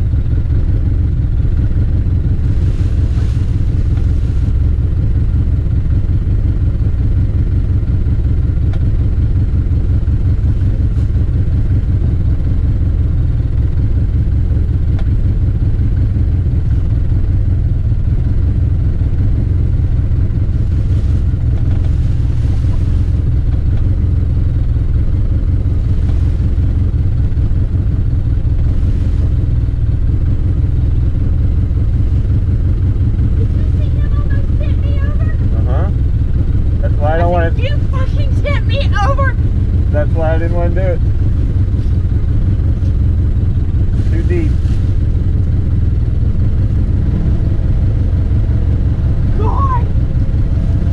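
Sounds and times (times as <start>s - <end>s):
engine idling with low rumble: 0.0s - 50.9s.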